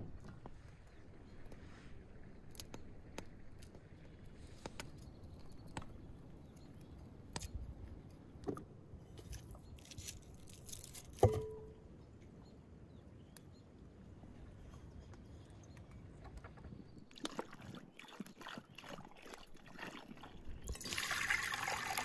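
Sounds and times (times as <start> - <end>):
garlic being peeled by hand: 9.2 - 11.3
papery crackle of skins: 9.8 - 11.2.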